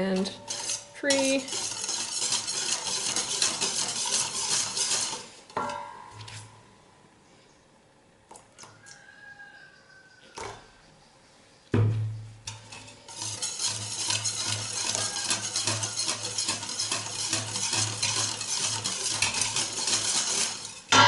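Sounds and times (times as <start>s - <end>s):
whisk scraping metal bowl: 0.0s - 5.5s, 12.5s - 21.0s
ringing metal clang: 5.6s - 6.2s.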